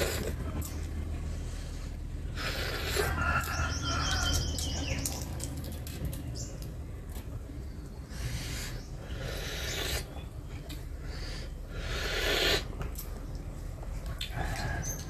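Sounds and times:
biting and chewing: 0.0s - 1.4s
steady low hum: 0.0s - 15.0s.

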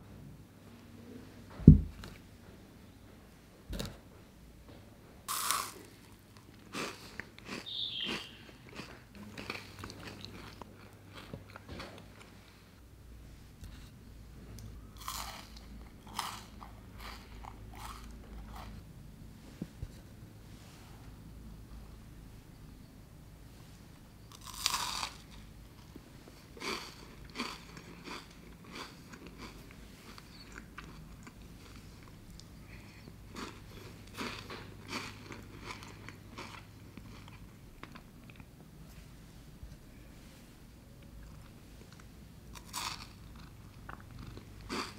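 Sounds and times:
soft knocks: 1.6s - 2.0s
person chewing crunchy candy: 5.3s - 11.7s, 15.0s - 18.8s, 24.3s - 25.4s, 26.4s - 38.5s, 41.2s - 44.9s.

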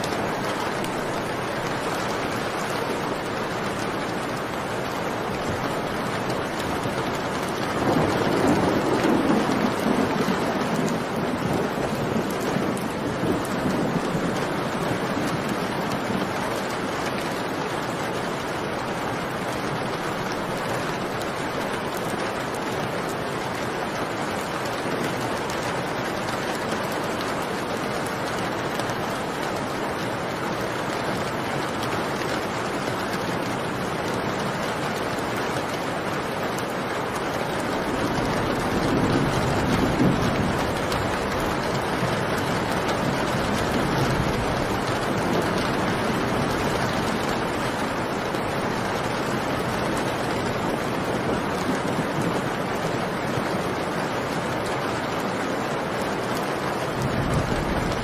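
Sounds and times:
steady rain: 0.0s - 58.0s
low rumble of thunder: 5.5s - 16.4s, 37.6s - 53.4s, 56.9s - 58.0s.

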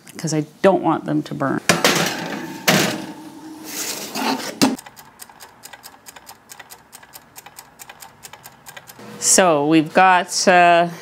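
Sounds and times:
baking sheet clattering onto oven rack: 1.7s - 3.2s
kitchen timer ticking: 4.8s - 9.0s.

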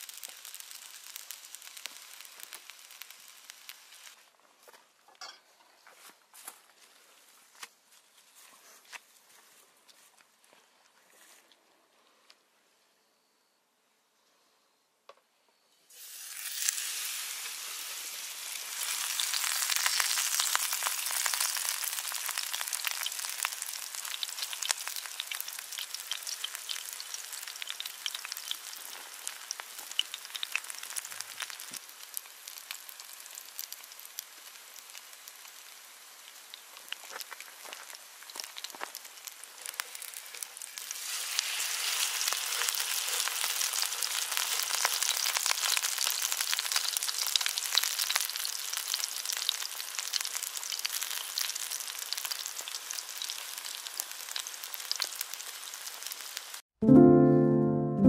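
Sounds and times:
pancake sizzling in frying pan: 0.0s - 4.3s, 15.9s - 56.7s.

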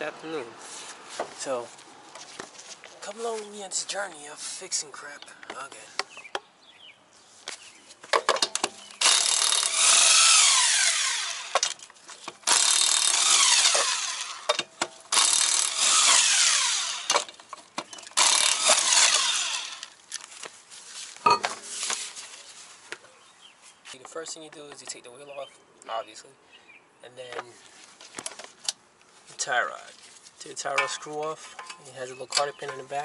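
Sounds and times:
power tool spinning lug nuts: 8.8s - 11.8s, 12.4s - 20.0s.

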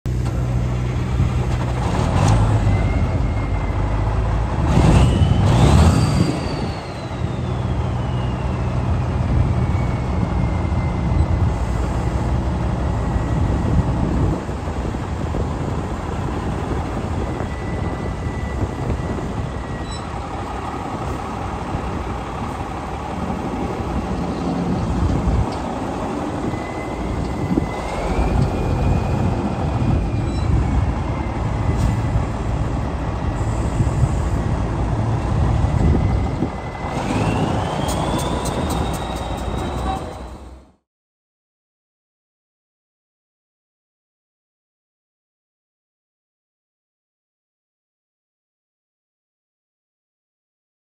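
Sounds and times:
high whistle: 5.0s - 8.9s, 35.9s - 40.2s
diesel truck engine idling: 10.5s - 36.8s.

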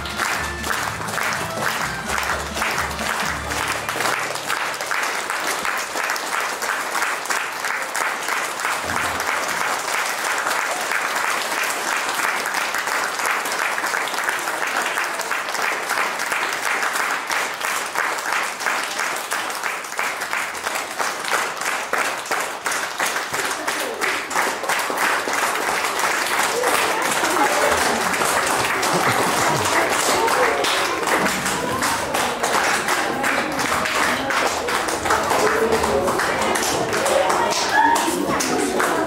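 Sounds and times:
folk dance music: 0.0s - 4.8s, 24.6s - 39.0s
audience clapping: 0.0s - 39.0s.

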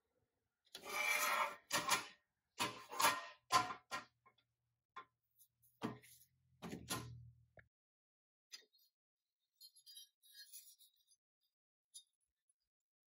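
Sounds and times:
metal toy scraping on bench: 0.8s - 3.5s.

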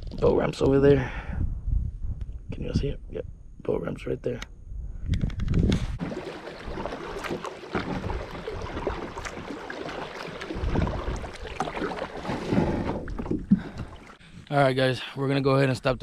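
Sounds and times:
splashing and dripping water: 6.0s - 14.3s
water slapping kayak hull: 6.0s - 14.3s
paddle pulling through water: 6.0s - 14.4s.

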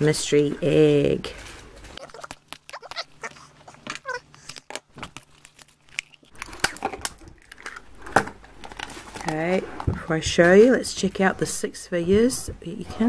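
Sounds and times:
wrapping rustling: 1.2s - 9.9s.

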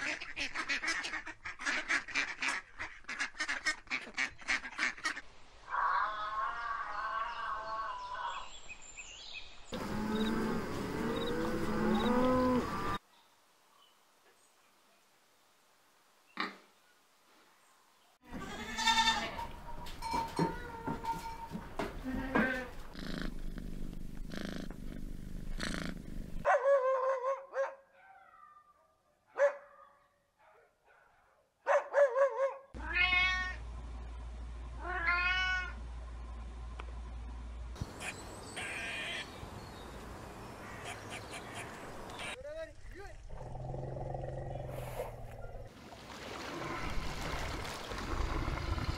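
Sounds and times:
cattle mooing: 9.8s - 13.0s
cat purring: 22.7s - 26.4s
cat meowing: 32.8s - 33.6s, 34.8s - 35.8s.

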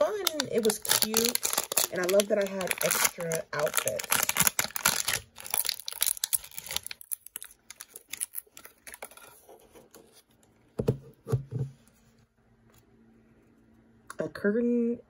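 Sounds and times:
plastic wrapper tearing: 0.0s - 9.5s.

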